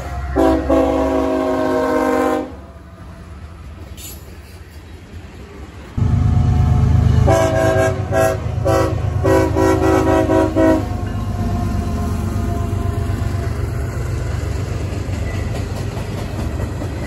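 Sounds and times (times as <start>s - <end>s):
train air horn blasts: 0.0s - 2.7s, 6.0s - 11.1s
locomotive engine rumbling: 0.0s - 17.0s.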